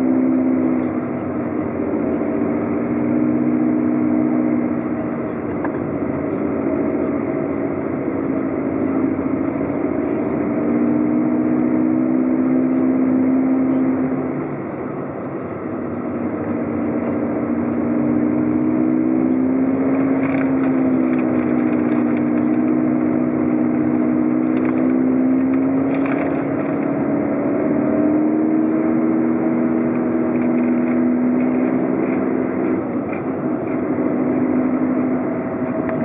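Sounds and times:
car engine and tyre noise: 0.0 - 36.0.

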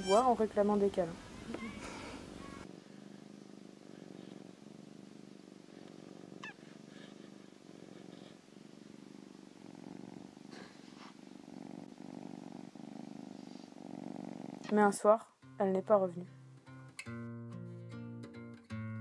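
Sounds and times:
high squeak falling in pitch: 0.0 - 0.4
cat purring: 0.6 - 15.1.

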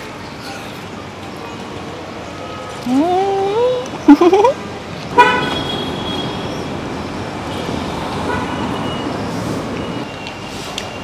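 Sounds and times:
street traffic noise: 0.0 - 11.0
vehicle horn toot: 5.2 - 6.6.

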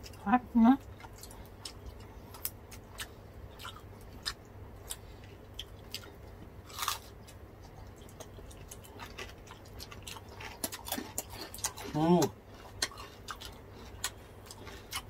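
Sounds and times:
people chewing crispy pork: 0.0 - 15.0.

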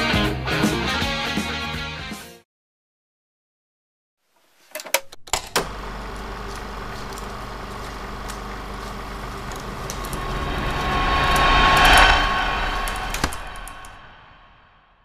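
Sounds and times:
rumbling drone: 6.6 - 15.0.

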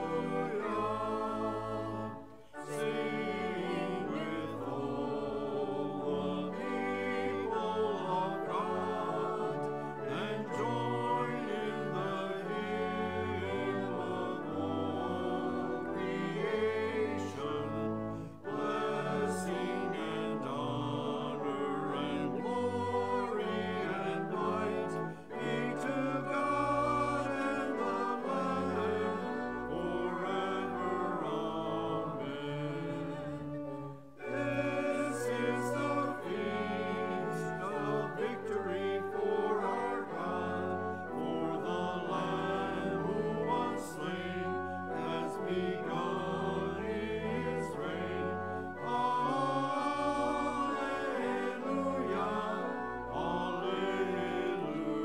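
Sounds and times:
choir and congregation singing hymn: 0.0 - 55.0
pipe organ: 0.0 - 55.0.

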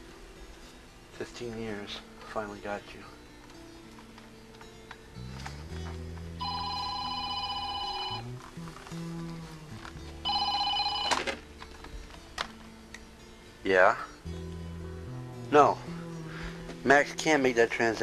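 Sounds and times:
background music: 0.0 - 18.0
telephone ringing: 6.4 - 8.4, 10.2 - 11.5.

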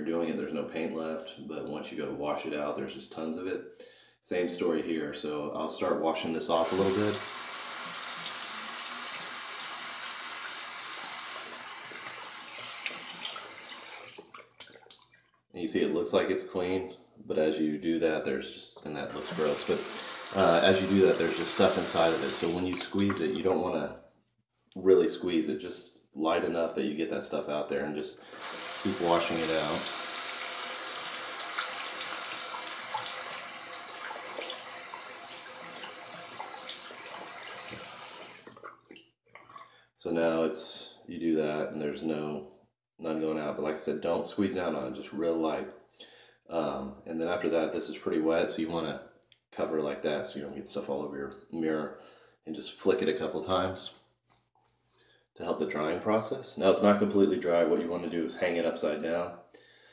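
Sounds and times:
shaving brush rinsed: 6.6 - 14.8, 19.1 - 23.3, 28.3 - 38.5
water running from a tap: 6.6 - 15.1, 19.1 - 23.3, 28.3 - 38.7
small water splashes: 12.0 - 15.4, 22.6 - 23.4, 37.6 - 39.7.

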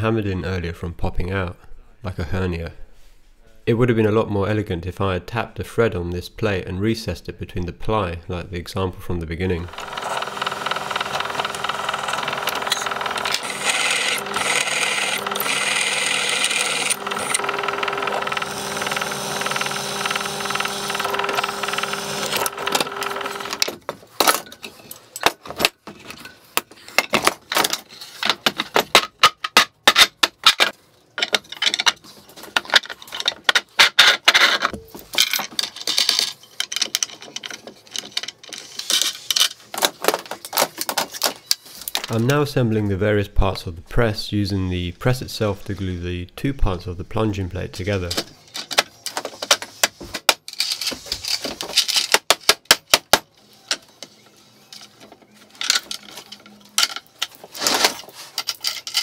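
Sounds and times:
drill press drilling metal: 9.7 - 23.7
metal nuts and washers clinking: 55.6 - 59.0.

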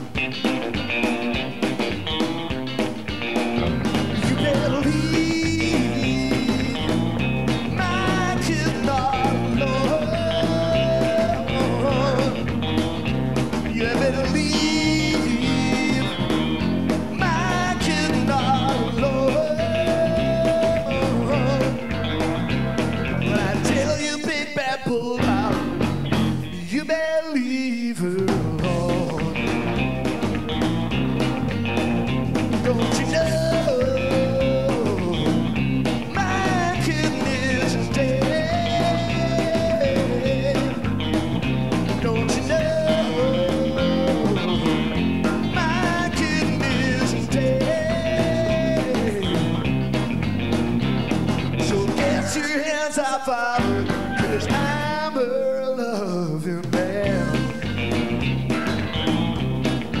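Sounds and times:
rock band playing: 0.0 - 27.0, 28.0 - 60.0
man singing lead vocal: 4.1 - 12.5, 13.6 - 16.5, 17.1 - 22.1, 23.1 - 25.8, 26.4 - 29.8, 32.6 - 40.9, 41.9 - 49.8, 51.6 - 57.9.

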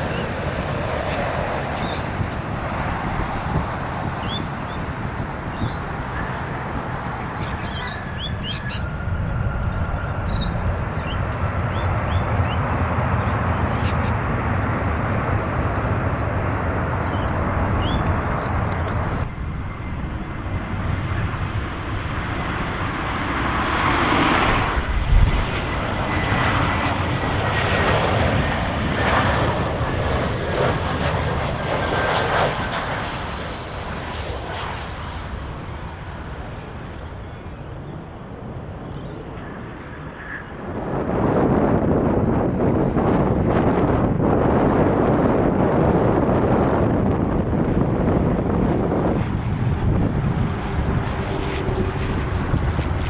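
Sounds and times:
birds chirping: 0.0 - 2.5, 3.3 - 14.3, 17.0 - 19.1, 38.7 - 40.6
jet airliner landing: 0.0 - 53.0.

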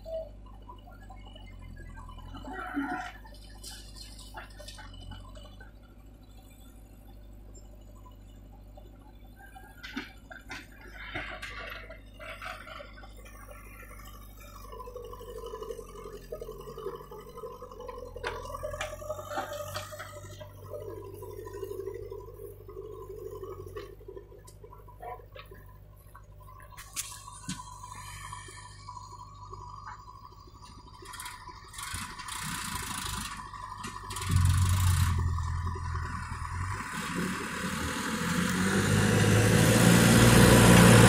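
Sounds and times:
diesel engines running: 0.0 - 41.0
higher engine hum: 0.0 - 41.0
knocks and clatter: 9.6 - 13.6.

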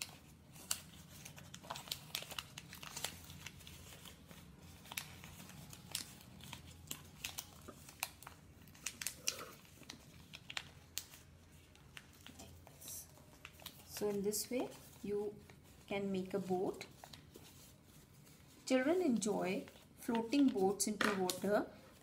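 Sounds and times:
paper crinkling and rustling: 0.0 - 22.0.

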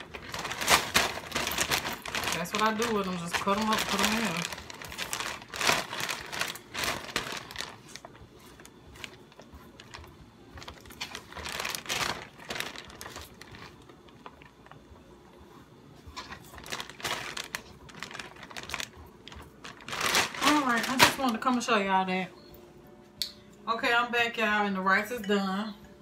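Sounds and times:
plastic bag crinkling: 0.0 - 14.9, 16.1 - 21.8.

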